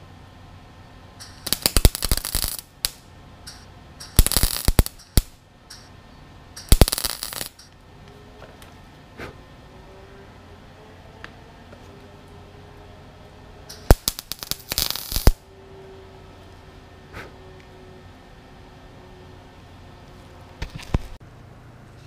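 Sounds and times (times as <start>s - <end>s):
welder arc crackling: 1.2s - 5.9s, 6.6s - 7.8s, 13.7s - 15.4s.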